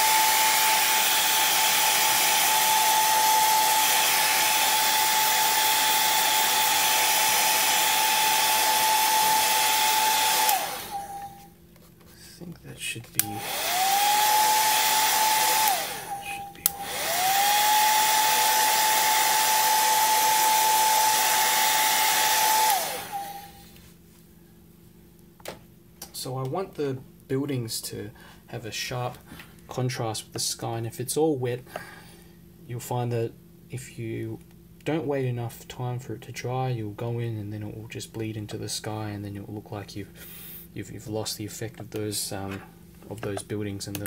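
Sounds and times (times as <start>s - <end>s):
hair dryer blowing: 0.0s - 11.4s, 13.2s - 23.7s.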